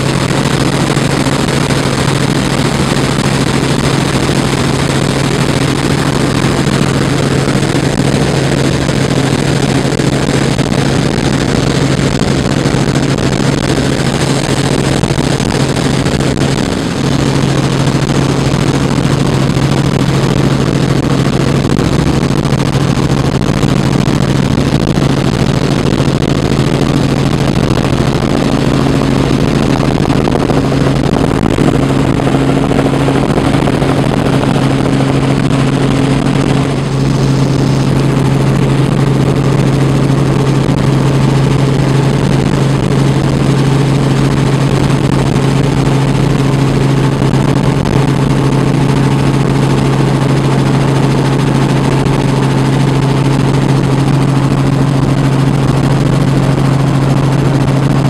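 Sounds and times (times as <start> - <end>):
helicopter engine and rotors: 0.0 - 58.0
rushing air: 0.0 - 58.0.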